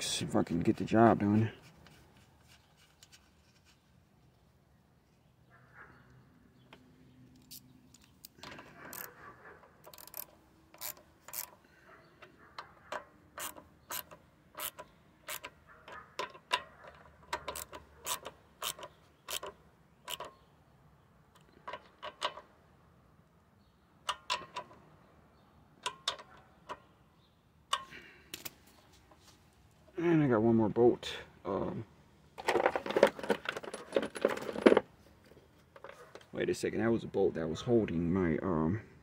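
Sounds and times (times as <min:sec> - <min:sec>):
socket ratchet clicking: 0:09.8 - 0:11.6, 0:13.4 - 0:15.6, 0:17.3 - 0:20.4.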